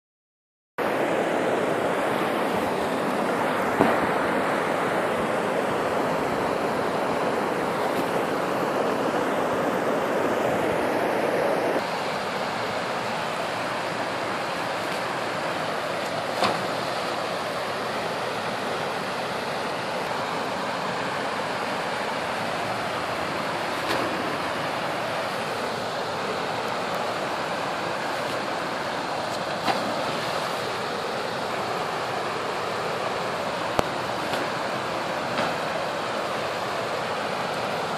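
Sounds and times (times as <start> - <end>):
creek water rushing over stones: 0.8 - 37.9.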